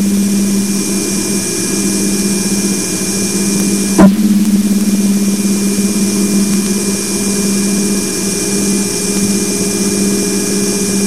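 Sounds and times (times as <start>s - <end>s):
steady hiss: 0.0s - 9.6s
low hum: 2.1s - 8.3s
constant high tone: 3.6s - 8.1s.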